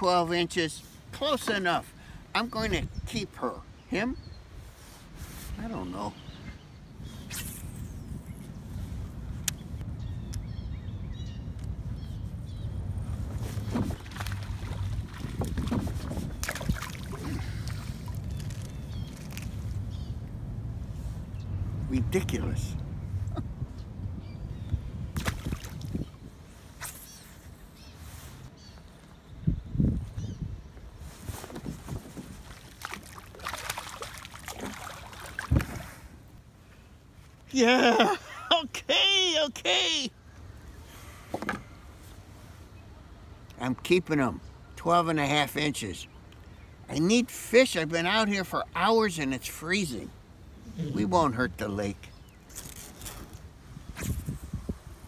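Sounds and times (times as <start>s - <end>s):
wind buffeting microphone: 5.5s - 26.6s, 29.3s - 36.4s, 52.7s - 55.0s
fish splashing in water: 32.5s - 35.9s.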